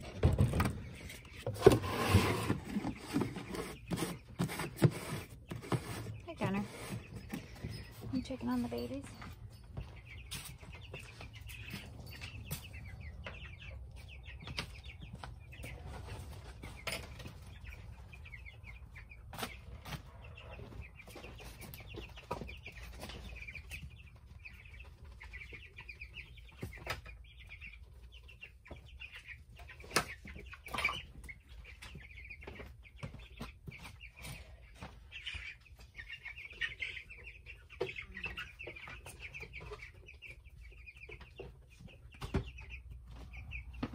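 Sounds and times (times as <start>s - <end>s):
baby chicks peeping: 0.0s - 43.9s
knocks and scrapes on wooden box: 1.4s - 7.4s.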